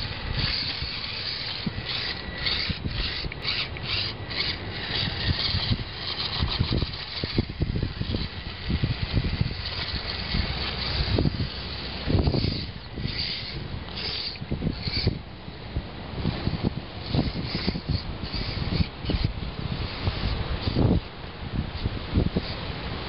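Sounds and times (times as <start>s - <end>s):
tyres scraping on stone: 0.0s - 15.2s
electric motor whirring: 0.0s - 15.4s, 16.2s - 21.0s.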